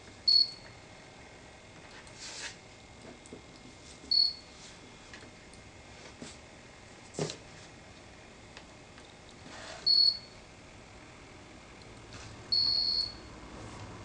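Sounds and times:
high-pitched electronic beeps: 0:12.6 - 0:13.3.

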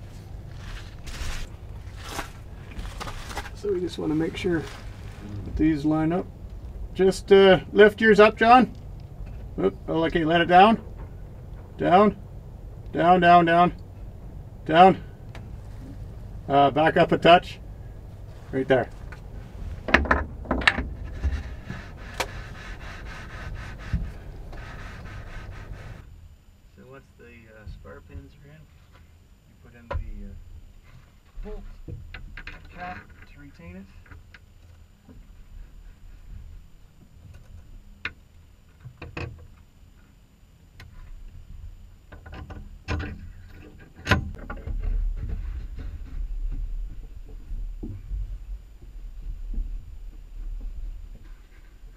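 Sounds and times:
low rumble: 0:00.0 - 0:26.4.

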